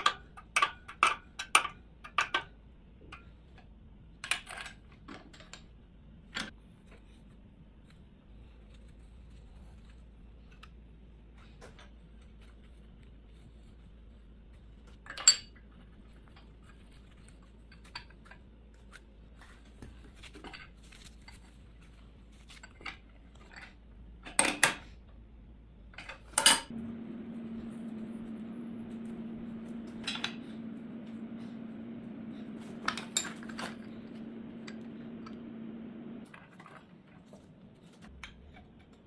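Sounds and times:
steady hum: 0.0s - 39.0s
metal fittings clinking and knocking: 14.9s - 18.4s, 32.6s - 35.4s.

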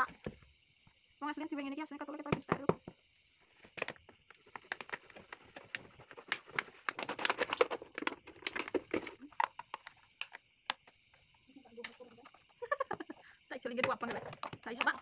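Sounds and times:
plastic bottle crackling: 3.6s - 10.8s.

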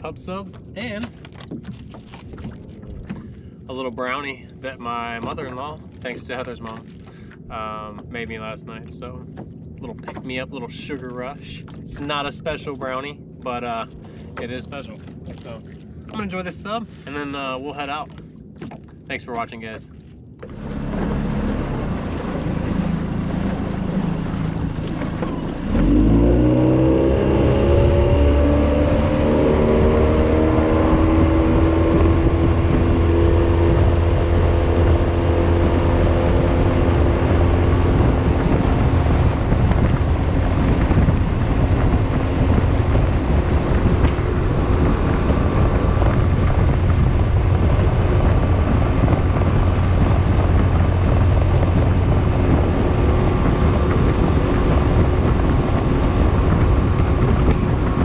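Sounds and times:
outboard motor accelerating: 0.0s - 58.0s
wind rushing over microphone: 20.5s - 58.0s.

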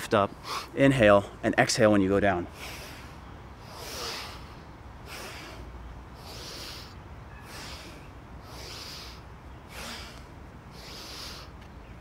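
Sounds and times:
man breathing in and out: 2.5s - 11.6s.

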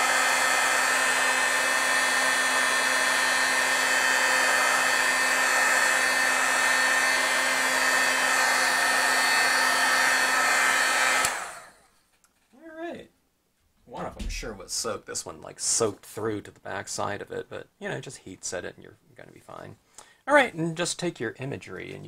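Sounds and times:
heat gun blowing: 0.0s - 12.0s.

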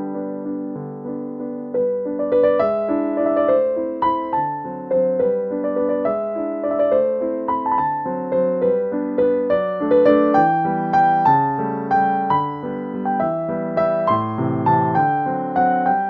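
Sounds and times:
gentle piano melody: 0.0s - 16.0s.

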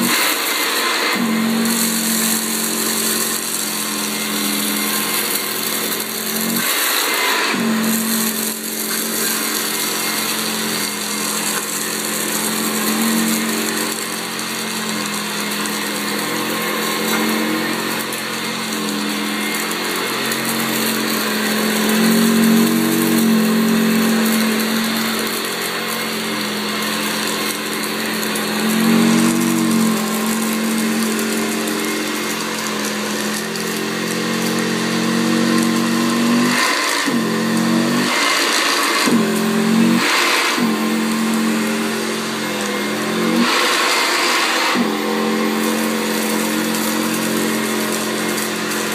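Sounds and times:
vacuum cleaner running on carpet: 0.0s - 48.9s.

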